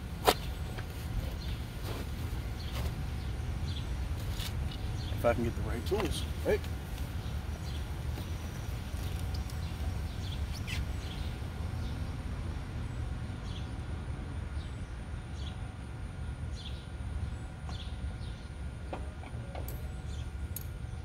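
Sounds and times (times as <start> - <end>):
bird chirps: 7.2 - 11.9.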